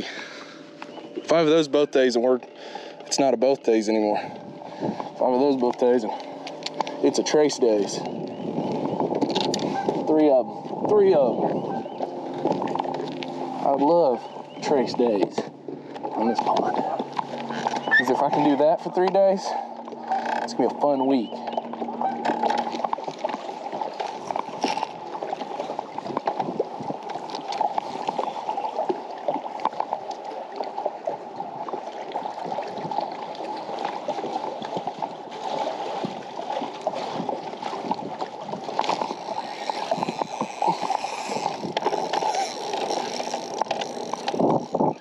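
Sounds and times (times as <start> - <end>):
small waves lapping against hull: 0.0 - 45.0.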